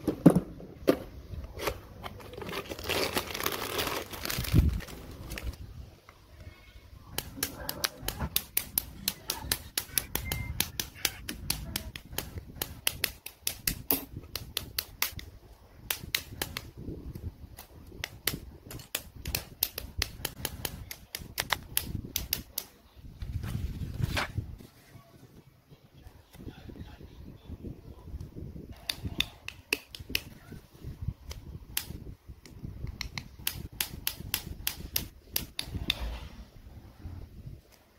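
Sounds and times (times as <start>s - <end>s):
side cutters snipping plastic: 7.1s - 22.8s, 31.2s - 36.1s.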